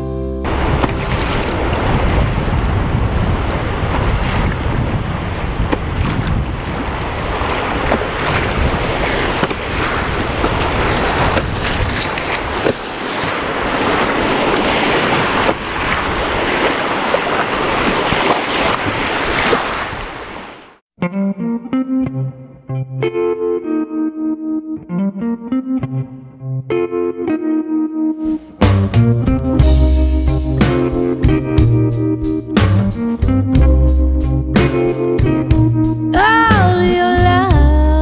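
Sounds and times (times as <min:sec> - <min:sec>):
wind buffeting microphone: 0:00.5 - 0:20.3
rushing river water: 0:00.5 - 0:20.8.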